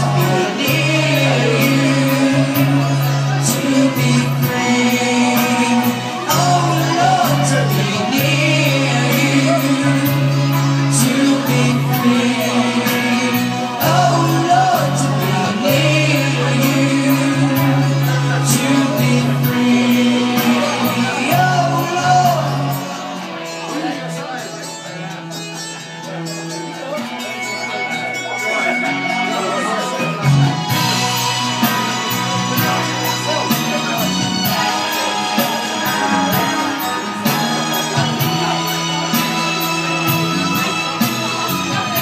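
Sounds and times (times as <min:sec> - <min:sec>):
live pop music with male singer: 0:00.0 - 0:42.0.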